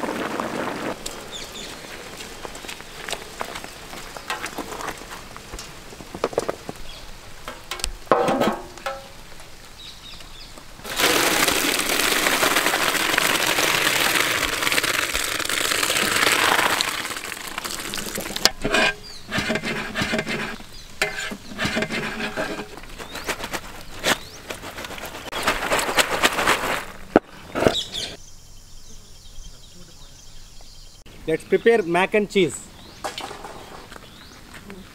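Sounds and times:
knocks and clatters: 7.4s - 9.2s, 33.0s - 33.9s
water pouring from metal pot: 10.8s - 22.6s.

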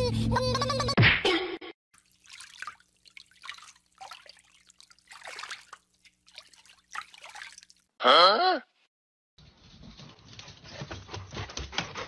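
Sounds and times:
shallow water splashing: 2.0s - 8.0s.

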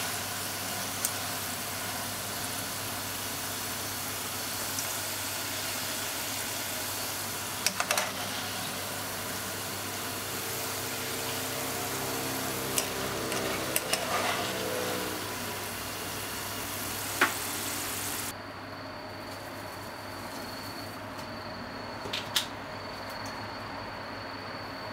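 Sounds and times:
hot oil sizzling: 0.0s - 18.3s.

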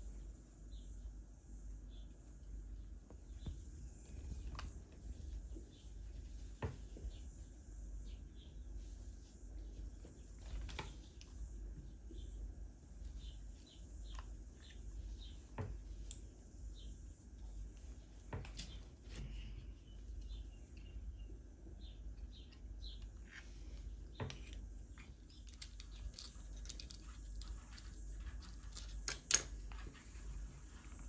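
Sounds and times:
low steady hum: 0.0s - 31.0s
small clicks and taps of shells: 25.2s - 29.8s.

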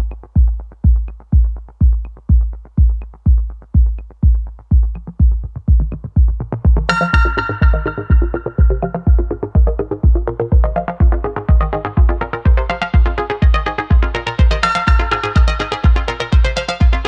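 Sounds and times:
deep drum beating: 0.0s - 17.0s
high sustained melody instrument: 7.0s - 9.2s.

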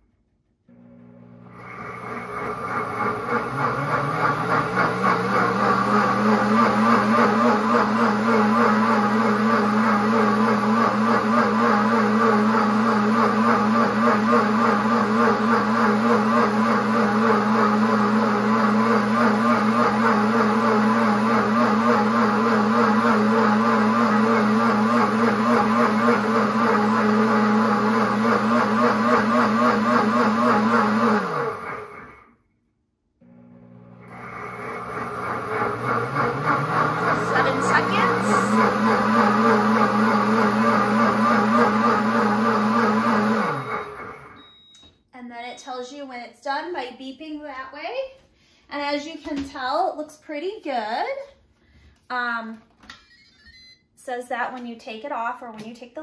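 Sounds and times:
blender motor whirring: 0.7s - 32.3s, 33.2s - 44.4s.

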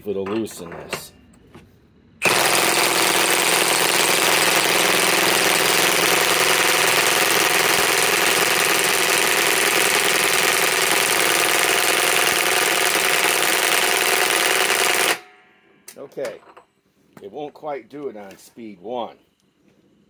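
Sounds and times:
impact wrench hammering: 2.2s - 15.4s.

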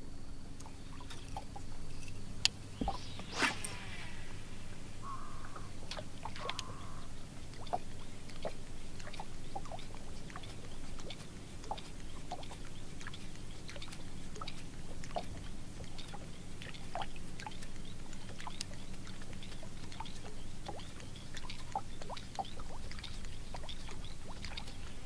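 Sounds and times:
low hum: 0.0s - 13.6s
water lapping against hull: 2.5s - 25.0s.

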